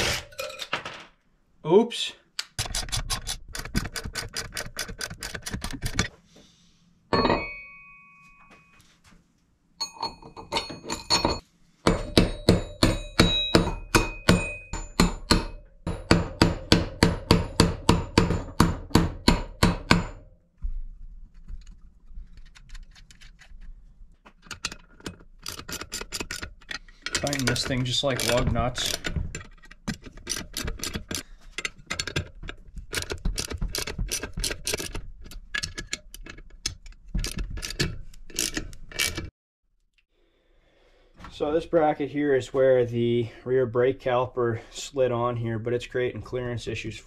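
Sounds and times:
metal ding: 0:07.1 - 0:08.8, 0:09.8 - 0:11.4, 0:12.0 - 0:16.1.

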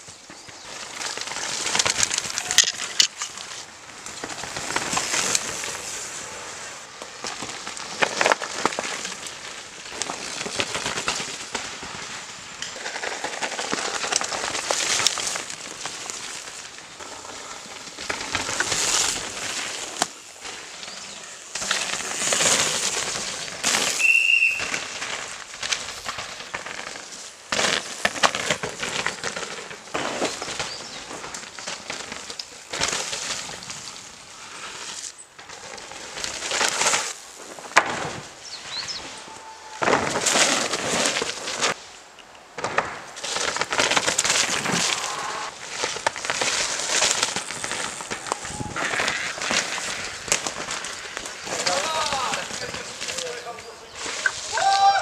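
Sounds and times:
mountain bikes passing on dirt: 0:00.0 - 0:55.0.

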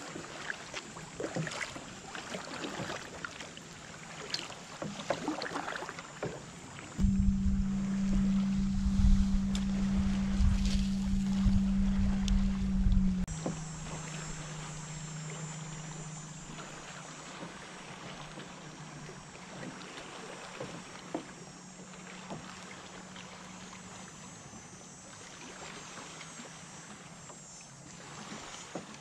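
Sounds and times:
water lapping against a kayak: 0:00.0 - 0:29.0
low steady hum: 0:06.8 - 0:26.7
light wind: 0:07.0 - 0:19.3.

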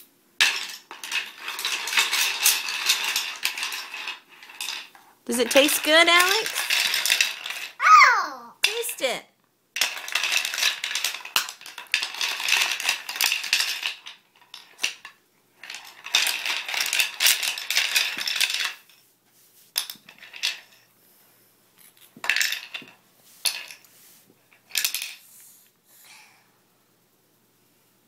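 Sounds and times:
wooden toy pieces clattering: 0:00.4 - 0:07.8, 0:08.6 - 0:09.0, 0:09.8 - 0:19.0, 0:19.8 - 0:20.8, 0:21.8 - 0:23.9, 0:24.5 - 0:25.2.

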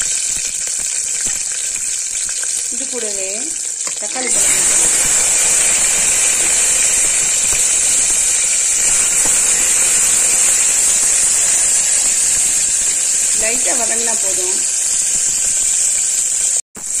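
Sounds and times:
tomatoes sizzling in hot oil: 0:00.0 - 0:17.0.

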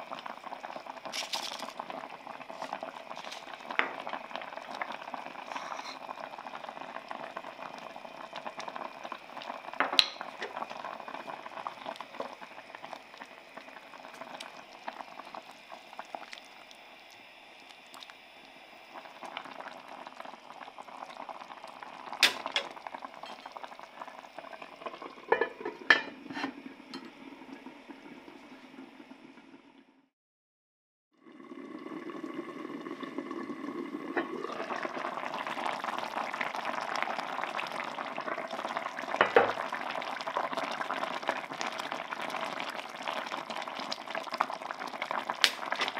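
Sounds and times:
broth bubbling: 0:00.0 - 0:29.6, 0:31.2 - 0:45.9
pot lid clinking: 0:09.8 - 0:10.6, 0:22.2 - 0:22.7, 0:23.3 - 0:23.6, 0:24.8 - 0:27.1.

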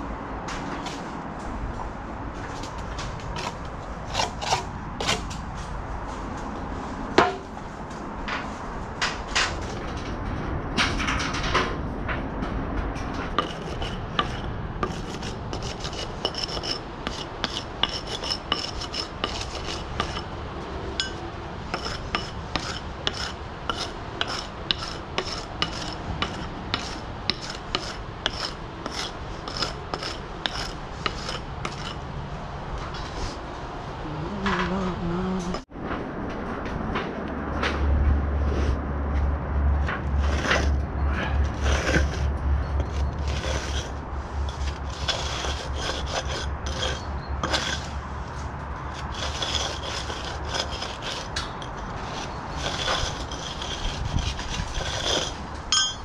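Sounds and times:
scraping and rubbing: 0:02.3 - 0:11.6, 0:13.0 - 0:20.4, 0:21.0 - 0:32.1, 0:32.8 - 0:33.5, 0:39.8 - 0:56.0.

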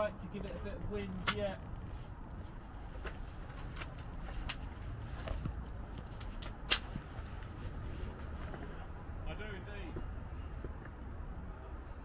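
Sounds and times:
sharp crack: 0:01.1 - 0:01.7, 0:06.4 - 0:07.0.

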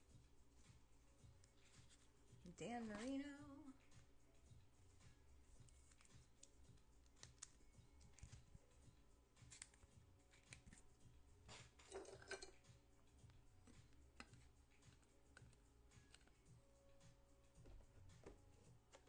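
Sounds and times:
trading cards in plastic holders: 0:01.3 - 0:02.2, 0:04.9 - 0:12.6, 0:13.2 - 0:19.0.

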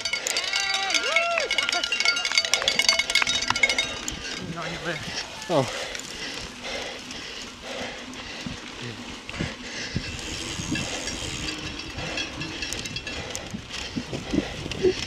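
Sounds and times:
wind rush on microphone: 0:02.8 - 0:05.8, 0:08.3 - 0:15.0.

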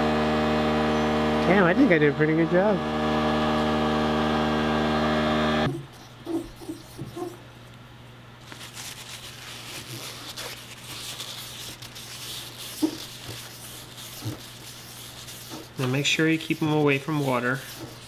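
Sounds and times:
steady machine hum: 0:00.0 - 0:09.8
paper towel rubbing metal: 0:06.0 - 0:07.4, 0:08.4 - 0:18.0.

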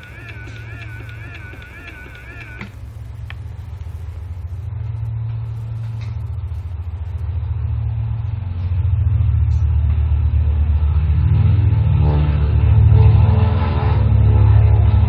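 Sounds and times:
loudspeaker click: 0:00.0 - 0:03.4
aircraft engine rumble on loudspeaker: 0:00.0 - 0:15.0.

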